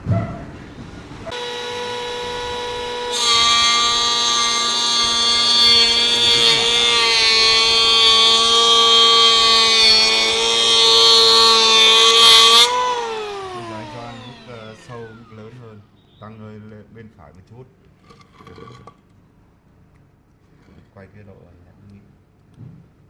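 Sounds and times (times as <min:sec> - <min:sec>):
planer cutting wood: 0:01.3 - 0:15.7
electric planer motor whine: 0:01.3 - 0:15.8.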